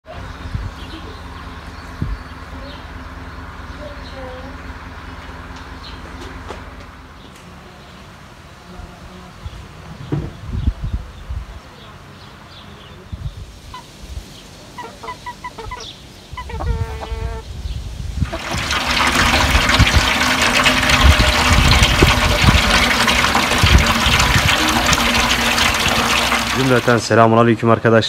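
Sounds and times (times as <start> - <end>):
small birds chirping: 0.0 - 6.4, 7.2 - 18.4
chicken call: 14.7 - 17.4
water rushing: 18.2 - 27.2.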